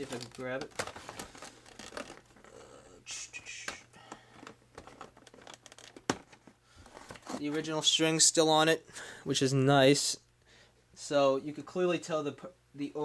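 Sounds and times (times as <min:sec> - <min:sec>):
cardboard packaging rustling: 0:00.0 - 0:02.6, 0:03.6 - 0:08.3.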